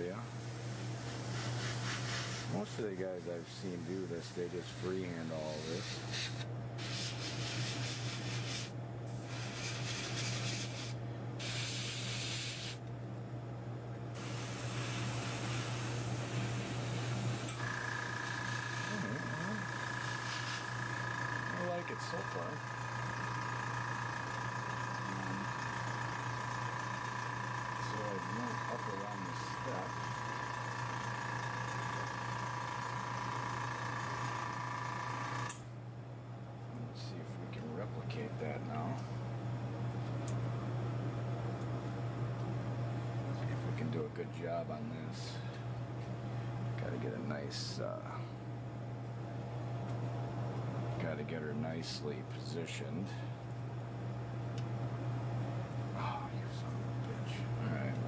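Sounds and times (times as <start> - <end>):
air compressor running: 0.0 - 12.9, 14.1 - 35.6
steady low hum: 0.0 - 58.0
airbrush spraying hiss: 0.3 - 2.7, 5.5 - 12.8, 14.2 - 17.6, 20.0 - 21.0.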